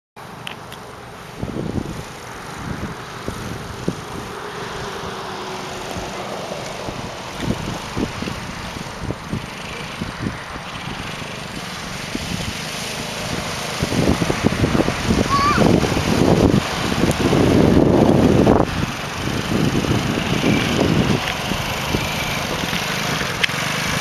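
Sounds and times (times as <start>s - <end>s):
distant atv engine running: 0.2s - 24.0s
wind thumps on microphone: 1.4s - 5.1s, 5.9s - 12.6s.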